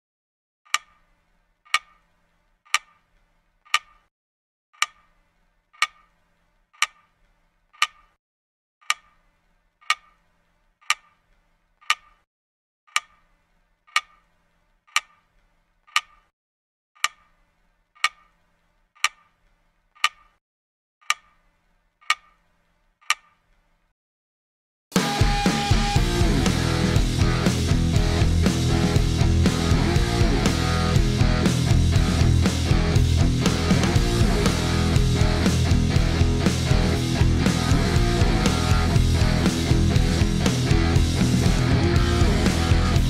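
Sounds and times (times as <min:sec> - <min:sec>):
clock ticking: 0:08.8 - 0:09.2, 0:09.8 - 0:10.2, 0:12.9 - 0:13.2, 0:13.9 - 0:14.2, 0:14.9 - 0:15.2, 0:15.9 - 0:16.3, 0:17.0 - 0:17.4, 0:18.0 - 0:18.3, 0:19.0 - 0:19.3, 0:20.0 - 0:20.3, 0:22.0 - 0:22.4.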